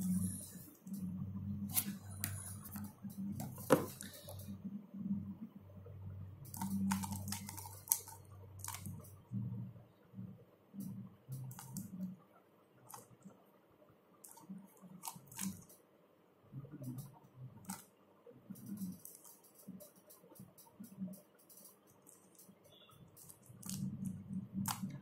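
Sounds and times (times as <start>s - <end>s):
puzzle cube plastic clicks: 6.5s - 9.0s.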